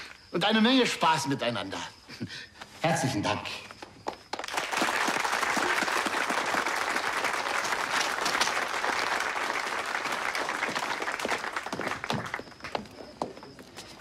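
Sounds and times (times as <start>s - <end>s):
crowd applauding: 4.3s - 12.8s.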